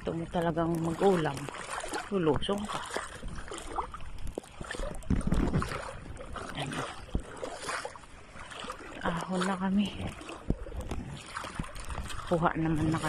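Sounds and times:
seawater sloshing and splashing: 0:00.0 - 0:13.0
wind gusting on microphone: 0:02.4 - 0:07.6.

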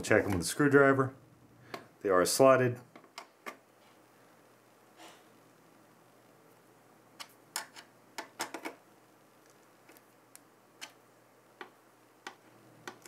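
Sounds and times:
small plastic clicks and taps: 0:11.6 - 0:13.0.

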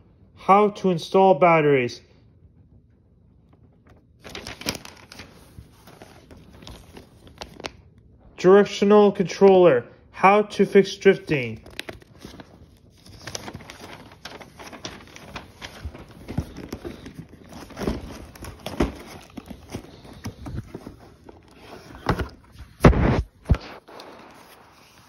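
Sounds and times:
paper and cardboard rustling: 0:03.9 - 0:07.8, 0:11.2 - 0:25.0.

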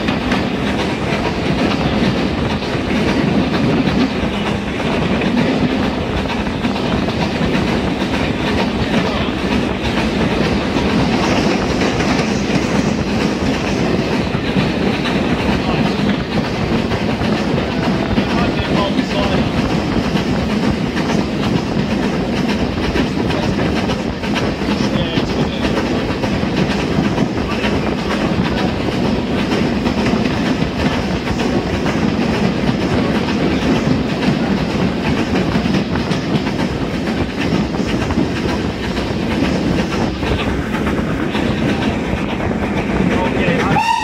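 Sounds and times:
train wheels rumbling on rails: 0:00.0 - 0:44.0.

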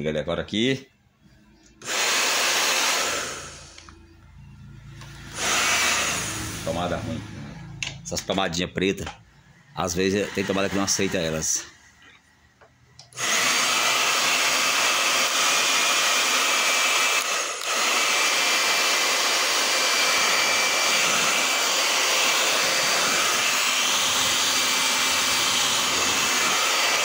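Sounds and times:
hair dryer running: 0:01.8 - 0:04.0, 0:05.0 - 0:07.7, 0:10.0 - 0:11.6, 0:13.1 - 0:27.0.

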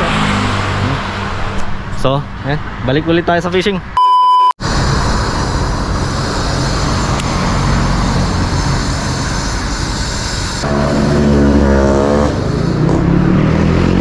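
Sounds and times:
traffic noise: 0:00.0 - 0:04.0, 0:04.6 - 0:14.0
short electronic beep: 0:04.0 - 0:04.6
vehicle engine running: 0:04.6 - 0:14.0.

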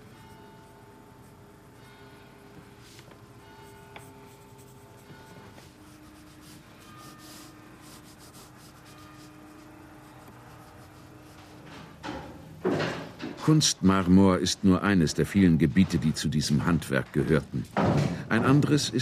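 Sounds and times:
faint sustained music: 0:00.0 - 0:12.0
pencil scratching on paper: 0:03.7 - 0:11.8.

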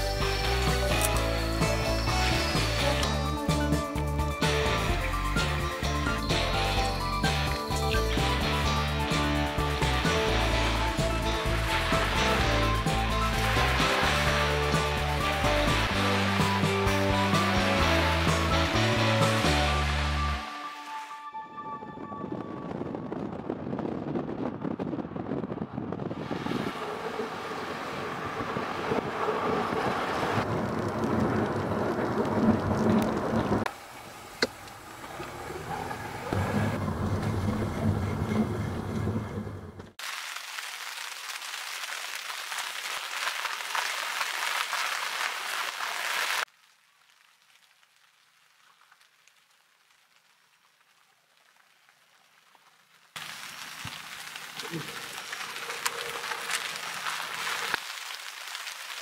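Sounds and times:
driving sounds: 0:00.0 - 0:20.6, 0:26.6 - 0:40.0
background music: 0:00.0 - 0:23.2
rain hissing on a windshield: 0:08.2 - 0:20.1, 0:40.0 - 0:59.0.

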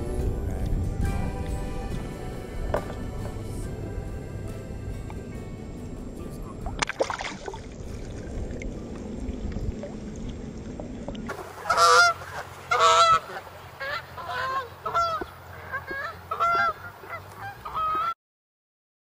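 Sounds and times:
low rushing noise: 0:00.0 - 0:17.5
geese honking: 0:11.3 - 0:18.2.

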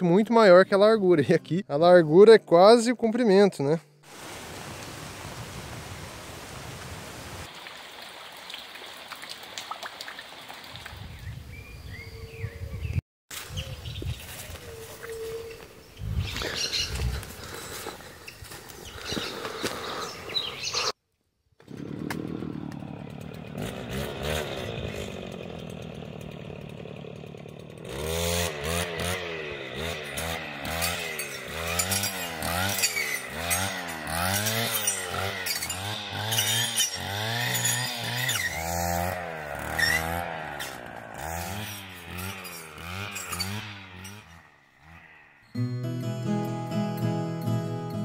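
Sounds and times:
two-stroke engine revving: 0:21.6 - 0:45.5.

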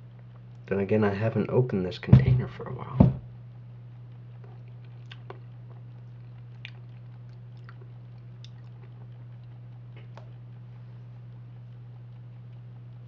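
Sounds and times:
low electrical hum: 0:00.0 - 0:13.0
wet mouth smacks while eating: 0:04.4 - 0:10.4.

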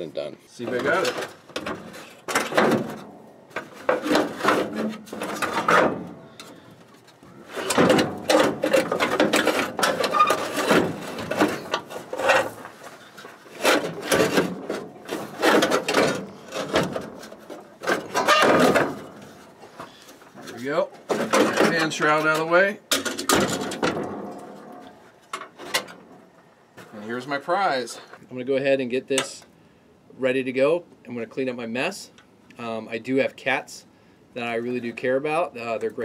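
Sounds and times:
radiator scraping and knocking: 0:00.6 - 0:22.4.

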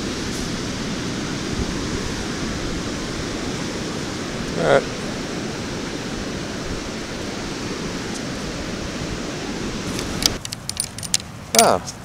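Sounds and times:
surf: 0:00.0 - 0:10.3
wind blowing over microphone: 0:00.0 - 0:12.0
metal sand scoop rattling: 0:09.9 - 0:11.8.

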